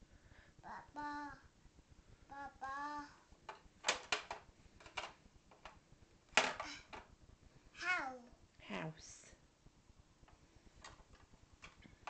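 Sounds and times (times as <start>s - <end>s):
plastic toys clicking: 3.5s - 5.8s.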